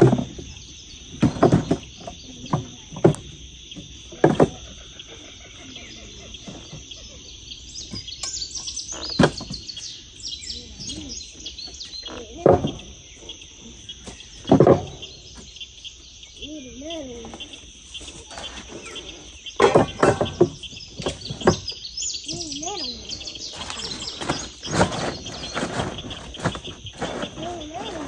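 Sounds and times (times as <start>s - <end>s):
birds chirping: 0.0s - 28.0s
insect chorus: 0.0s - 28.0s.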